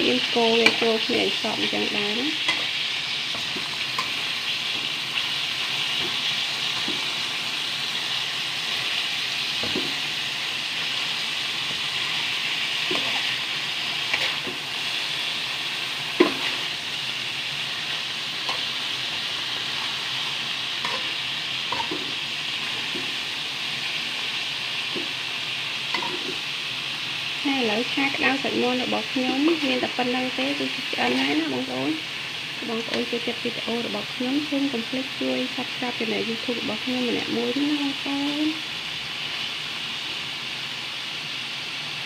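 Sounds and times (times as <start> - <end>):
food sizzling in a wok: 0.0 - 42.0
metal spatula scraping a wok: 12.8 - 15.4, 16.0 - 17.1, 20.8 - 23.0, 25.9 - 26.4.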